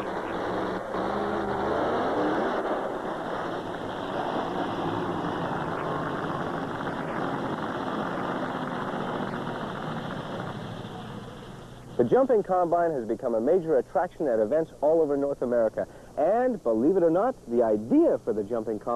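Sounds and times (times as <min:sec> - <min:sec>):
engine revving: 0:00.0 - 0:12.0.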